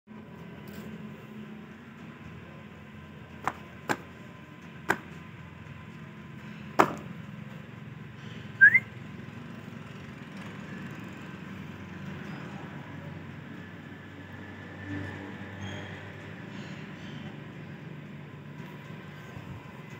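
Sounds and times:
sharp knocks: 0:04.9 - 0:05.2, 0:06.8 - 0:07.1
short rising whistle: 0:08.6 - 0:08.9.

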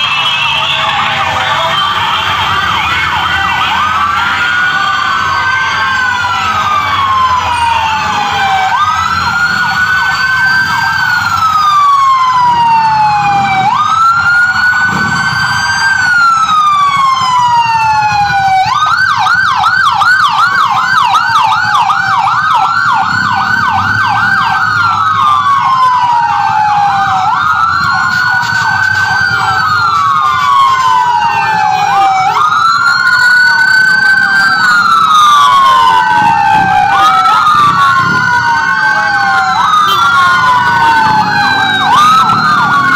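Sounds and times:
ambulance sirens wailing: 0:00.0 - 0:42.9.

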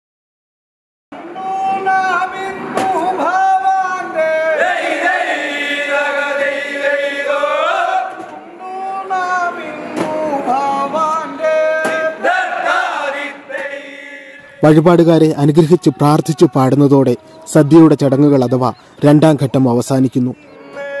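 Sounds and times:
men singing in unison: 0:01.2 - 0:14.6, 0:20.4 - 0:21.0.

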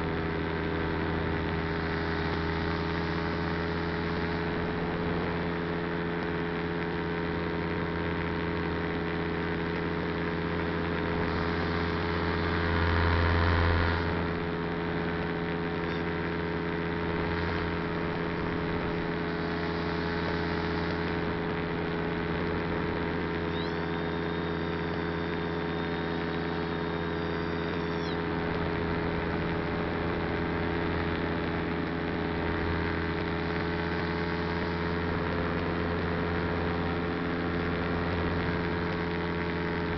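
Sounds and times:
small motor drone: 0:00.0 - 0:39.9
rush of noise: 0:15.4 - 0:39.9
faint high whistle: 0:23.4 - 0:28.2.

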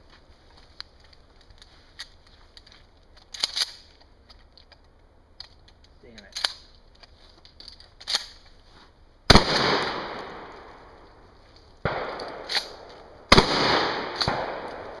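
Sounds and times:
shotgun blasts echoing: 0:09.3 - 0:10.8, 0:11.8 - 0:15.0.

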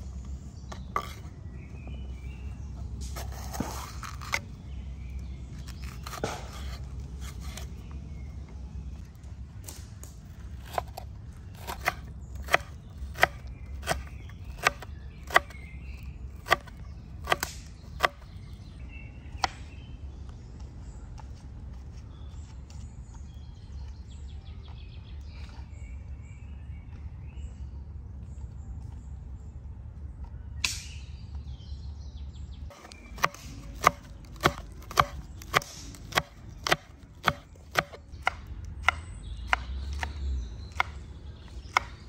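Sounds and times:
birds chirping: 0:00.0 - 0:42.0
low background rumble: 0:00.0 - 0:42.0
knife chopping on cutting board: 0:03.1 - 0:04.4, 0:05.6 - 0:07.7, 0:11.6 - 0:15.6, 0:16.4 - 0:18.2, 0:32.7 - 0:41.0.

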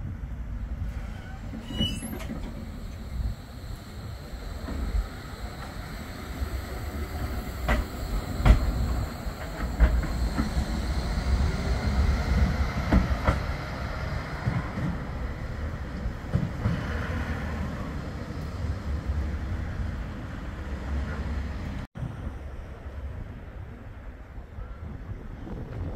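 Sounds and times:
tram rumbling past: 0:00.0 - 0:24.4
wheels clacking over rail joints: 0:01.2 - 0:15.2.

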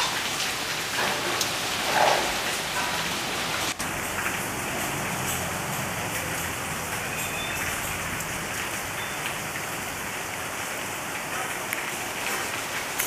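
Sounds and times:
rain on plants and wet street: 0:00.0 - 0:13.0.

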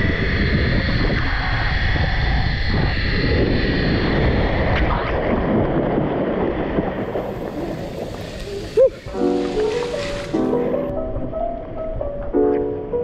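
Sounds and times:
wind rushing over microphone: 0:00.0 - 0:13.0
water splashing and churning: 0:05.3 - 0:10.9.

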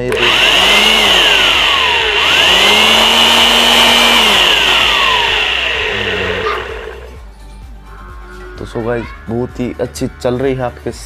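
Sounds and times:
electric air blower whining: 0:00.0 - 0:07.2.

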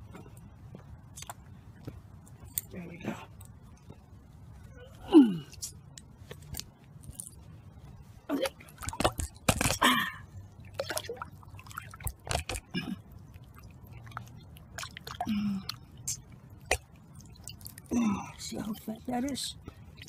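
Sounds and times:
water splashing and sloshing: 0:06.2 - 0:20.0.

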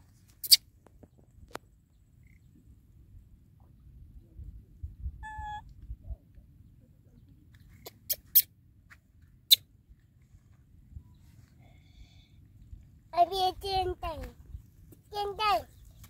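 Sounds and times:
wind rumble on microphone: 0:02.8 - 0:07.5
baby monkey squeaking: 0:05.2 - 0:05.6, 0:07.8 - 0:08.5.

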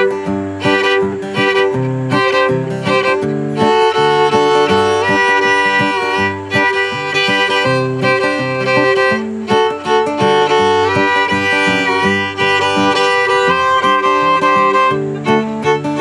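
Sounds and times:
acoustic guitar chords: 0:00.0 - 0:16.0
fiddle melody: 0:00.0 - 0:16.0.

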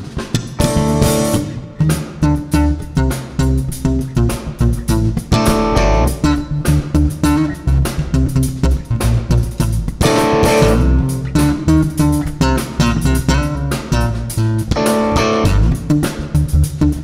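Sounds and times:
drum kit with cymbals: 0:00.0 - 0:17.0
electric bass line: 0:00.0 - 0:17.0
electric guitar: 0:00.0 - 0:17.0.

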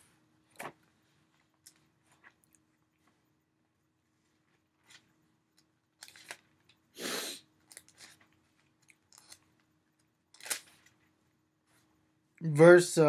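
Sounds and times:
thin pages turning: 0:06.0 - 0:06.7, 0:07.7 - 0:09.7, 0:10.3 - 0:11.1.

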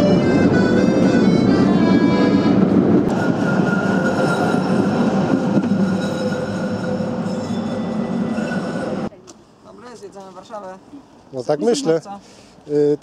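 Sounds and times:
stepping melody music: 0:00.0 - 0:02.8
train rumbling: 0:00.0 - 0:11.3.

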